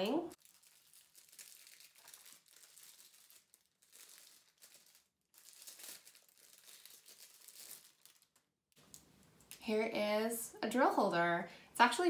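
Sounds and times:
plastic wrapping crinkling: 0.3 - 9.6.

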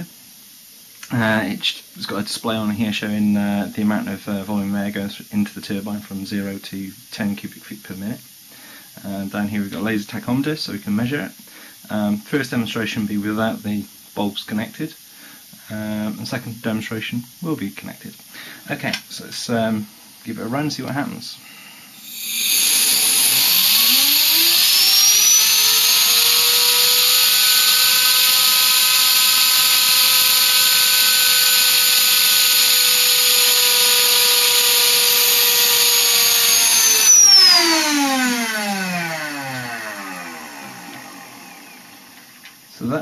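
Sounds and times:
turbine whine: 18.8 - 43.0
compressed air rushing: 21.6 - 42.1.

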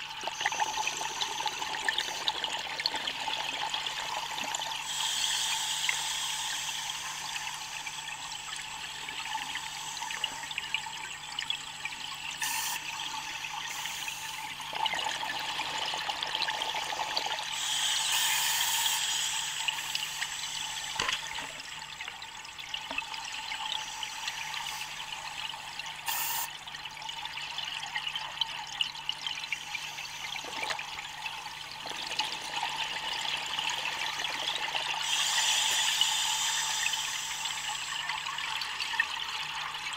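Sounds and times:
scuba regulator breathing hiss: 4.8 - 8.5, 9.4 - 10.5, 12.4 - 14.5, 17.5 - 21.0, 23.6 - 25.1, 26.1 - 26.5, 35.0 - 38.1.

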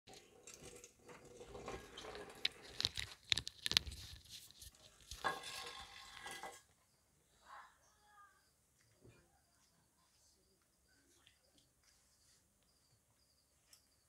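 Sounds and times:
rustling handling noise: 0.6 - 6.6
sharp clicks and crackles: 1.7 - 5.3.

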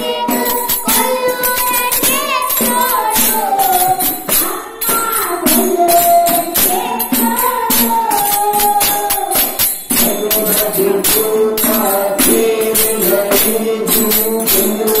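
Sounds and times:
jingling hand percussion: 0.0 - 15.0
voices singing into microphones: 0.0 - 15.0.

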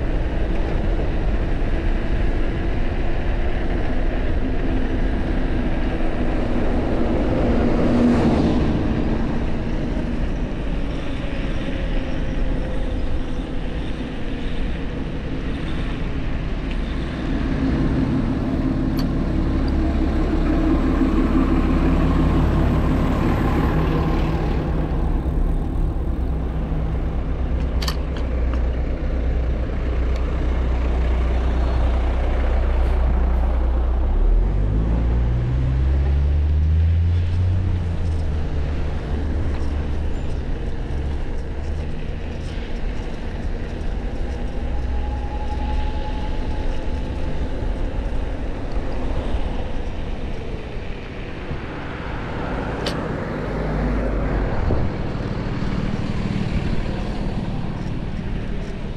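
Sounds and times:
road traffic: 0.0 - 58.9
wind rumbling on microphone: 0.0 - 58.9
vehicle engine speeding up: 29.7 - 42.2.

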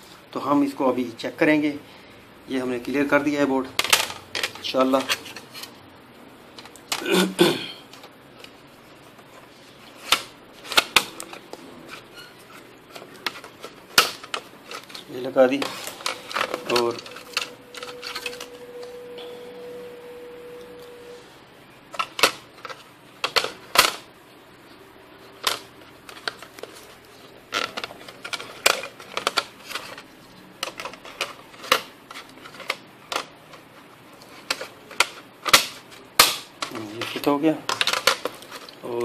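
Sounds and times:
faint steady tone: 15.9 - 21.8.

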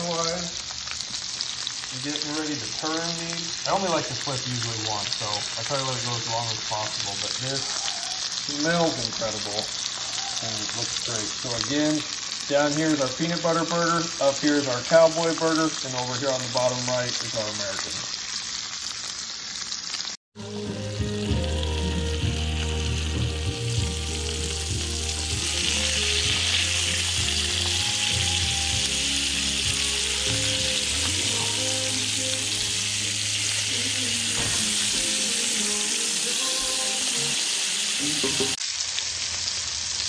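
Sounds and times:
meat sizzling in a skillet: 0.0 - 40.0
background music with bass: 20.4 - 35.8.

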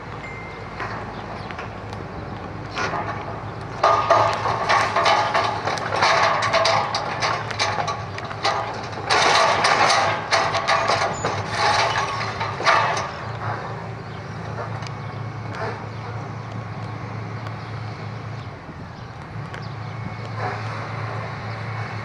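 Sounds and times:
diesel engine running: 0.0 - 22.0
rubble and timber crashing: 2.7 - 13.4.

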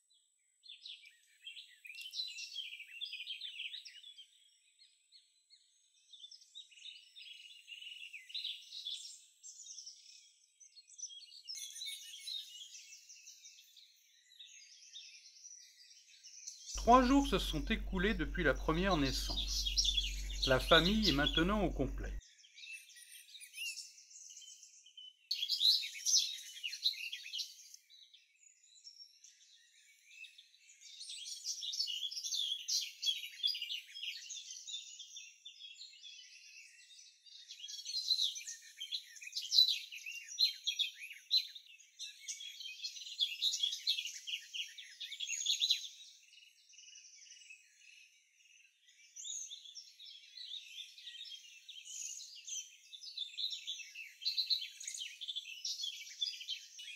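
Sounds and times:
high-pitched bird chirping: 16.8 - 22.2.

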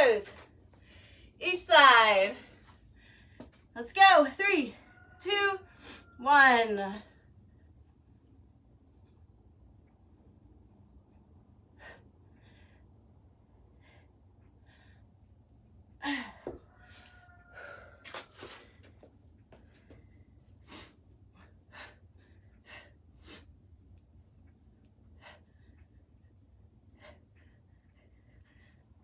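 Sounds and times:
steady low hum: 6.4 - 16.4, 18.6 - 29.0.

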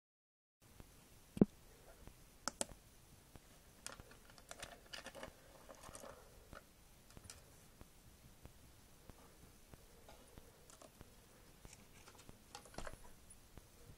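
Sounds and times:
plastic parts clicking and rattling: 3.8 - 7.5, 10.6 - 11.0, 11.6 - 13.1.

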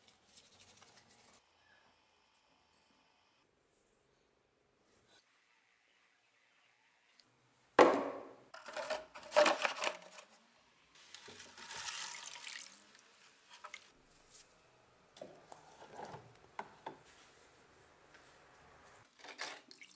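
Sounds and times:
metal parts clunking in plastic tub: 8.6 - 10.3
liquid pouring: 11.2 - 13.9.

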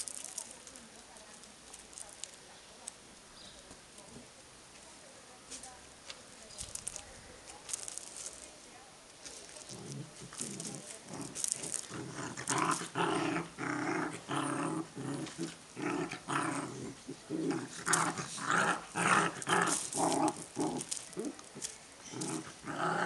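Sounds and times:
dogs growling: 9.7 - 23.0.

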